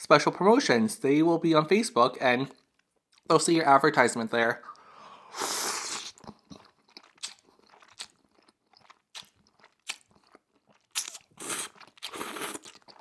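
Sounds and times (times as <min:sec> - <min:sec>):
noodle slurping: 0:04.8 - 0:13.0
wet chewing clicks: 0:05.9 - 0:13.0.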